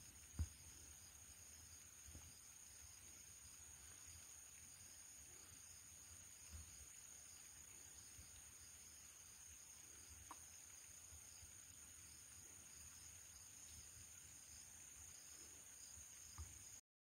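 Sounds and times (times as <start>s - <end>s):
high-pitched insect chorus: 0.0s - 16.8s.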